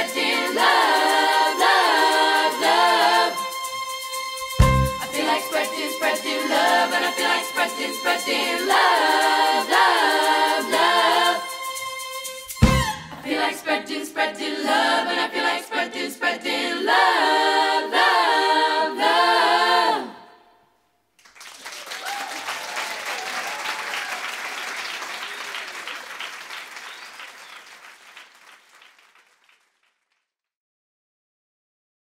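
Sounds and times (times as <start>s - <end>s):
female choir singing in harmony: 0.0s - 20.5s
audience applauding: 21.2s - 30.1s.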